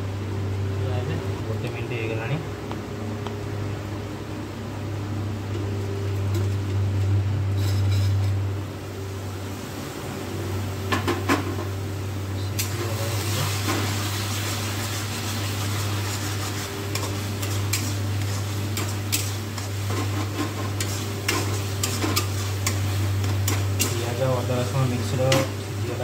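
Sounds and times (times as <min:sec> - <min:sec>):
steady low hum: 0:00.0 - 0:26.0
paste sizzling in pan: 0:12.6 - 0:26.0.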